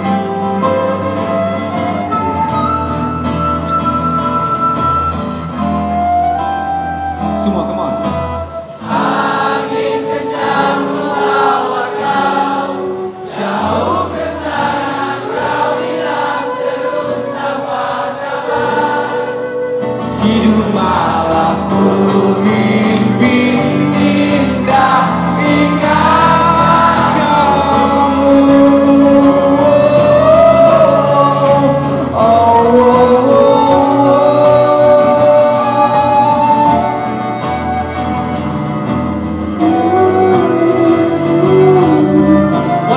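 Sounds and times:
acoustic guitar: 0.0s - 42.9s
flute: 0.0s - 42.9s
person singing: 18.5s - 37.4s, 39.6s - 42.9s
cello: 39.2s - 42.9s.

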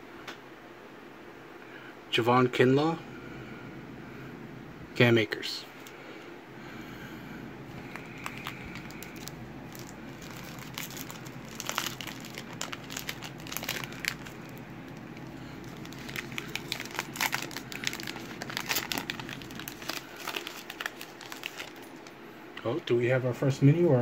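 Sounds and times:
foil wrapper crinkling: 7.8s - 22.2s.

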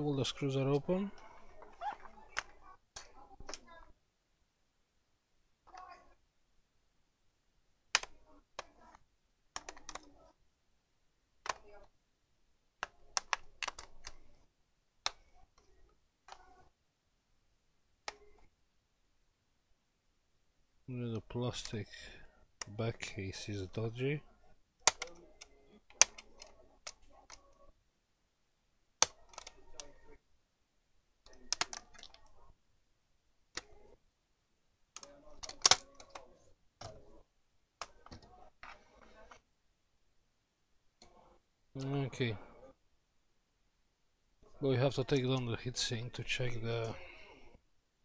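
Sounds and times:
plastic casing clicks and snaps: 35.0s - 37.0s.

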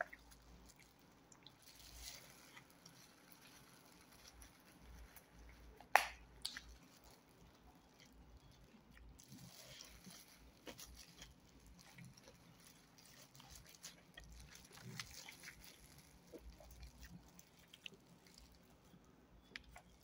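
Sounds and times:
plastic glove crinkling: 0.0s - 20.0s
soft chewing: 0.0s - 20.0s.

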